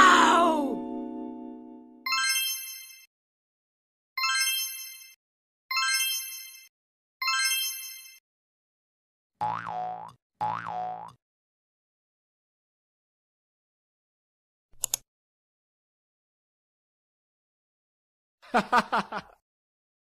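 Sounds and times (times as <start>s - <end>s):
springy boing: 9.4s - 11.2s.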